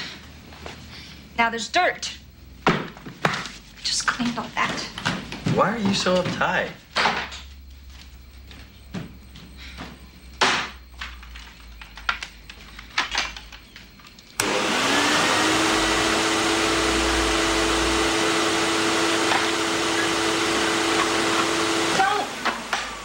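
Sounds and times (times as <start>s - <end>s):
vacuum cleaner whine: 14.4s - 23.0s.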